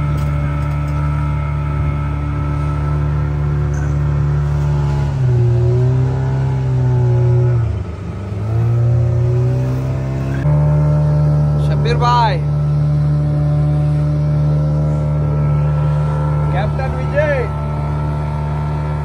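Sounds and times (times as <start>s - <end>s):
boat engine droning: 0.0s - 19.0s.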